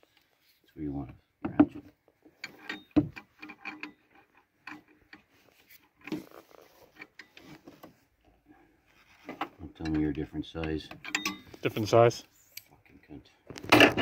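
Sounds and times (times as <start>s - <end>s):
wrench clicking and scraping on bolts: 2.4s - 7.4s, 9.0s - 11.8s.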